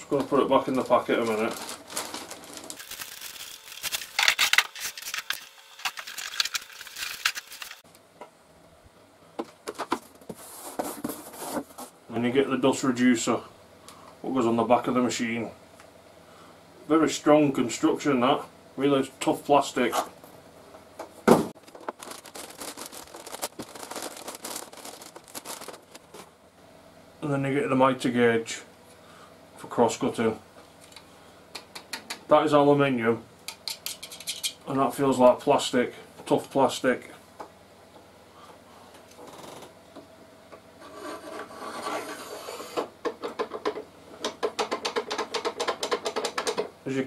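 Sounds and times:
plastic packaging crinkling: 0:00.1 - 0:07.8, 0:21.6 - 0:26.3
thump: 0:21.3 - 0:21.5.

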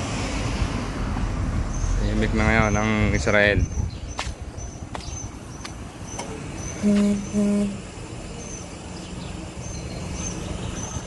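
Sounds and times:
street background noise: 0:00.0 - 0:11.0
small birds chirping: 0:01.7 - 0:11.0
car horn beeps: 0:06.8 - 0:07.9.

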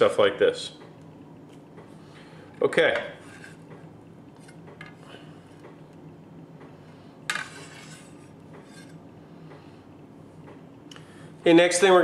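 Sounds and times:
knife tapping and scraping board: 0:07.3 - 0:09.0.

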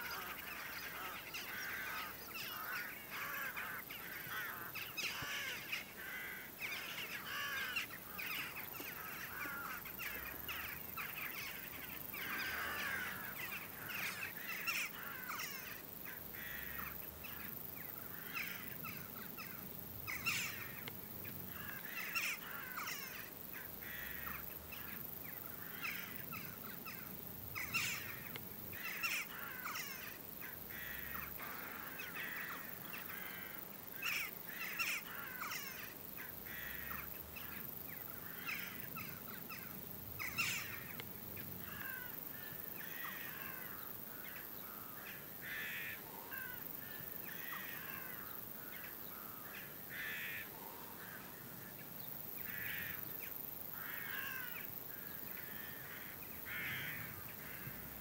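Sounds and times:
flock of jackdaws calling: 0:00.0 - 0:58.0.

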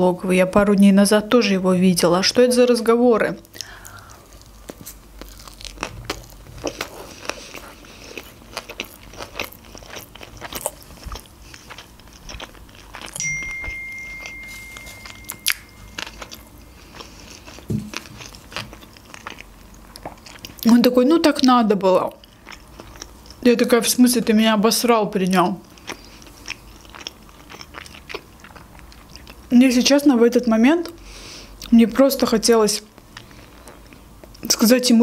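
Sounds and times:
person chewing: 0:03.5 - 0:20.7, 0:22.2 - 0:23.4, 0:25.6 - 0:29.5
thin high tone: 0:13.2 - 0:16.8.

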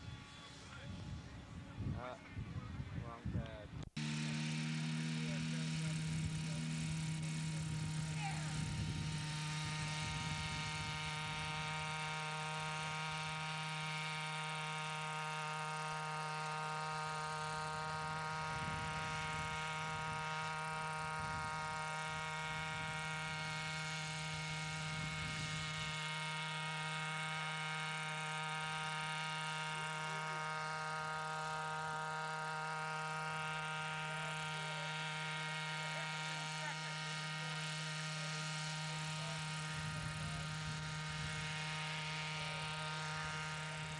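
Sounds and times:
model helicopter engine and rotor: 0:00.0 - 0:43.9.

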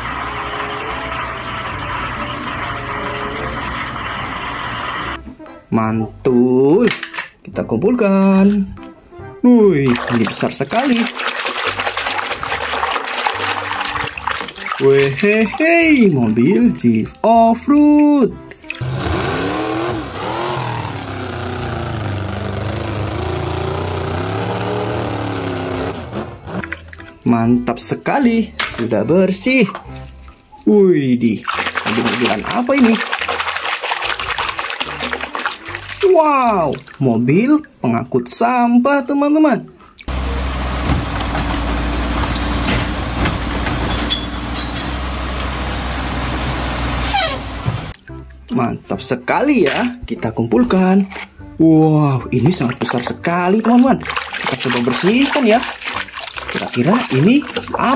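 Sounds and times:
small motor running: 0:18.8 - 0:26.5.

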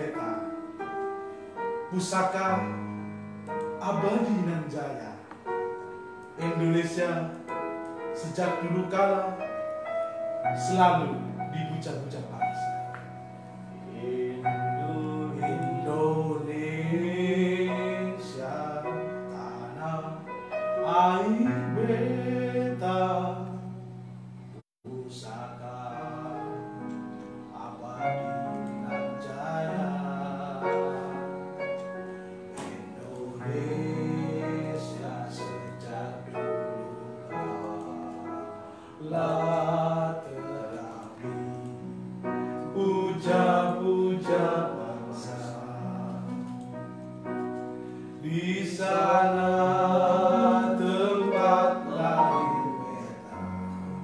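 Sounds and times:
electronic keyboard chords: 0:00.0 - 0:54.0
man singing: 0:03.8 - 0:05.2, 0:06.4 - 0:07.4, 0:13.9 - 0:23.8, 0:24.8 - 0:26.9, 0:27.5 - 0:31.5, 0:32.5 - 0:41.7, 0:42.6 - 0:46.5, 0:48.2 - 0:53.7.

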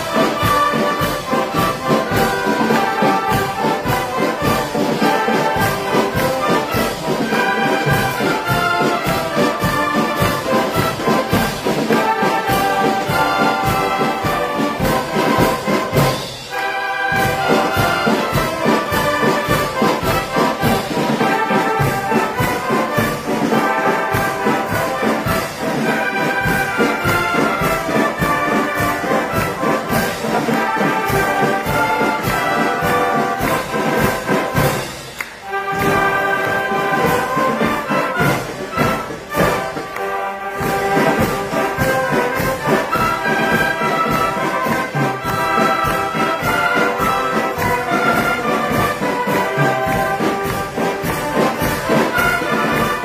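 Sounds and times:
shawm band playing in unison: 0:00.0 - 0:53.0.

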